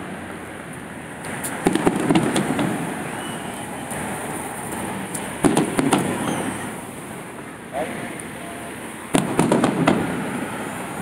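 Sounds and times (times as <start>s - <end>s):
steady background noise: 0.0s - 11.0s
fireworks bangs: 1.5s - 6.8s, 9.1s - 10.8s.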